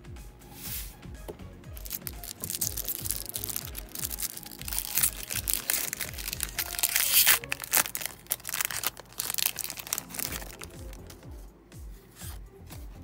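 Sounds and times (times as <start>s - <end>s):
background music with bass beat: 0.0s - 13.0s
foil wrapper crinkling and tearing: 1.8s - 11.2s.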